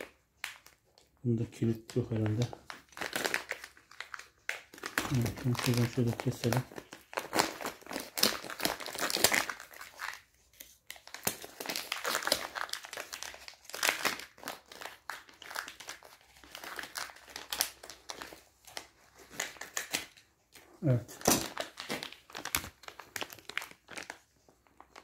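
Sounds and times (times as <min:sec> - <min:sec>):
plastic bag rustling and crackling: 0:01.6 - 0:10.3, 0:20.8 - 0:25.0.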